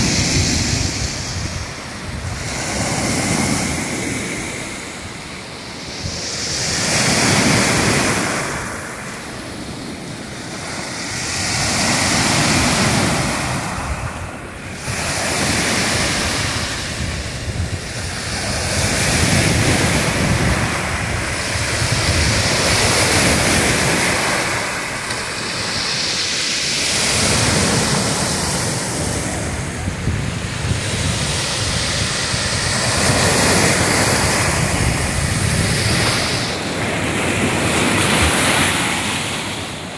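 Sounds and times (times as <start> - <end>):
wind rumbling on microphone: 0.0 - 39.9
surf breaking on pebble beach: 10.6 - 39.7.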